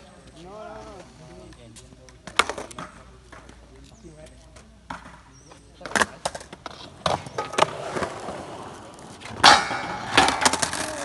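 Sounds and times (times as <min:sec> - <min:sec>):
skateboard wheels rolling on concrete: 0:00.0 - 0:11.0
skateboard trucks clacking on steel: 0:02.1 - 0:03.6, 0:04.8 - 0:11.0
skateboard grinding on metal: 0:07.3 - 0:11.0.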